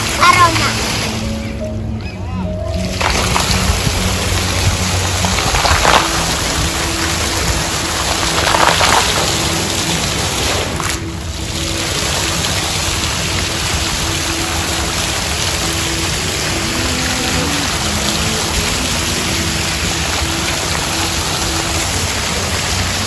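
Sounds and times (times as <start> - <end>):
faint music: 0.0 - 23.0
fountain water splashing: 0.0 - 23.0.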